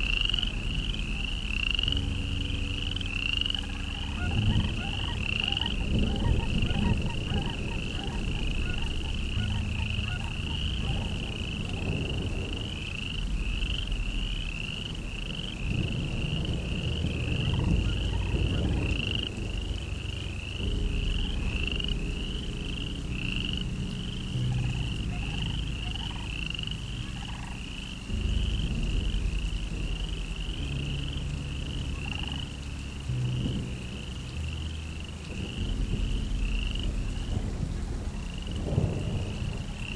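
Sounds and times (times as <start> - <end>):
low rumble: 0.0 - 39.9
high chirping animal calls: 2.9 - 12.0.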